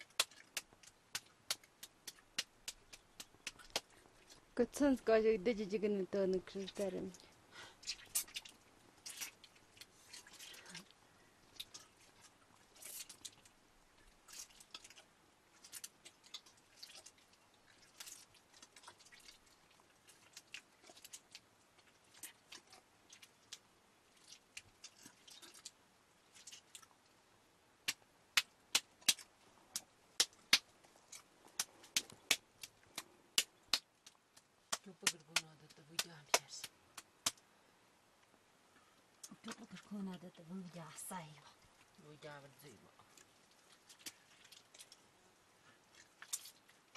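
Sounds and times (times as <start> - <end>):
palms slapping wet lump: 0.0 - 5.0, 6.4 - 10.9, 27.8 - 37.4, 43.0 - 45.0, 45.9 - 46.9
wet squelches of kneading: 0.0 - 27.2, 38.8 - 46.9.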